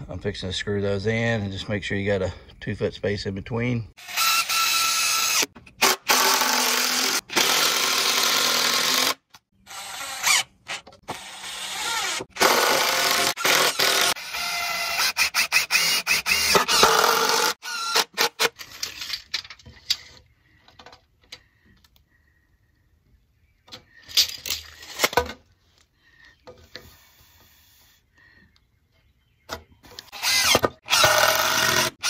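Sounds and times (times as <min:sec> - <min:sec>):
impact driver driving screw: 0:30.1 - 0:32.0.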